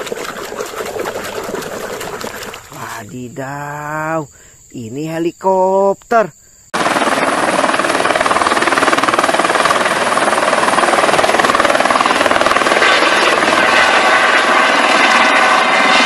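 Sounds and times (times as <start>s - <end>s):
helicopter rotor beating: 0.0s - 3.5s, 6.8s - 16.0s.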